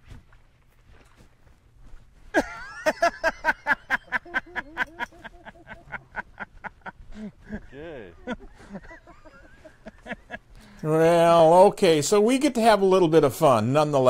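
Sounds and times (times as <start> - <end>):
person laughing excitedly: 2.4 - 10.4.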